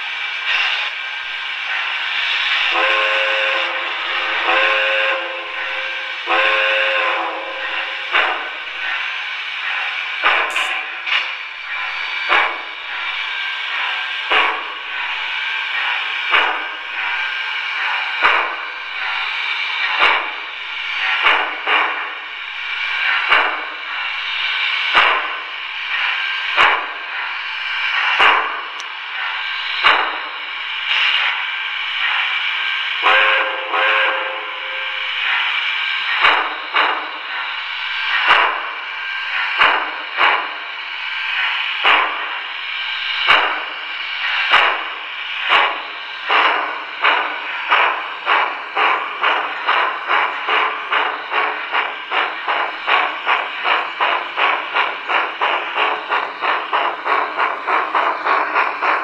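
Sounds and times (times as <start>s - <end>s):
steady steam hiss: 0.0s - 59.0s
steam locomotive chuffs: 0.0s - 59.0s
train whistle: 2.6s - 8.8s, 32.6s - 36.0s.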